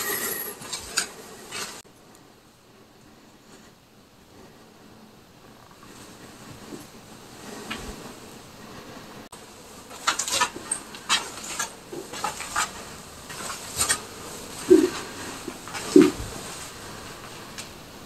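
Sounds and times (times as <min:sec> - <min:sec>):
footsteps scraping on gritty floor: 0:09.8 - 0:17.6.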